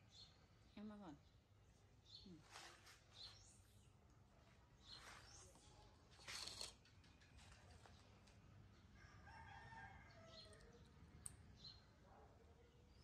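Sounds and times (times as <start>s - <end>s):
distant rooster crowing: 9.0s - 10.7s.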